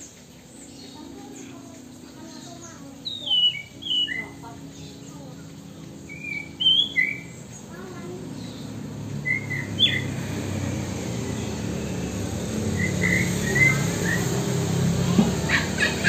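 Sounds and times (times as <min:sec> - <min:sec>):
steady low hum: 0:00.0 - 0:16.0
bird whistled chirps: 0:03.0 - 0:04.4, 0:06.0 - 0:07.4, 0:09.2 - 0:10.2, 0:12.6 - 0:14.6.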